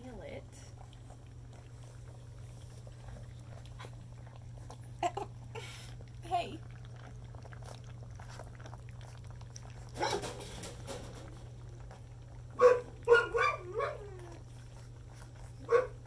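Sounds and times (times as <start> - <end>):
puppies slurping and lapping: 0.0 - 16.0
puppy yelp: 12.6 - 14.5
puppy yips and whine: 12.6 - 14.5.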